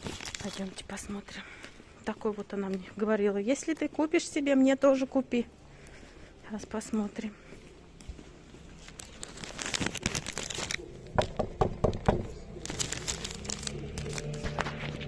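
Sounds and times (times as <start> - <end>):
crinkling rustling handling noise: 0.0 - 4.2, 6.6 - 15.0
knocks on a door: 11.2 - 12.3.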